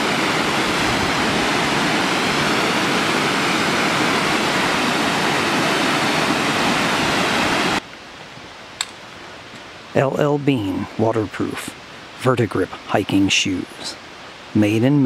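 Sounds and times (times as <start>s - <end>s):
waterfall rushing: 0.0s - 7.8s.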